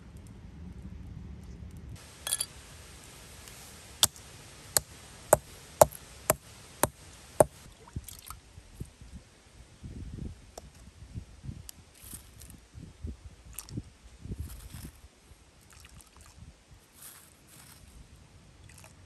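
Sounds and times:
stones clattering: 0:02.1 - 0:02.6
stone striking stone anvil: 0:02.2 - 0:02.6, 0:04.8 - 0:07.6.

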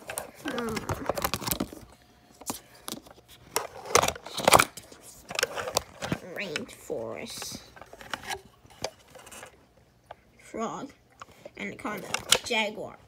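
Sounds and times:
stiff book pages turning: 0:00.0 - 0:09.6.

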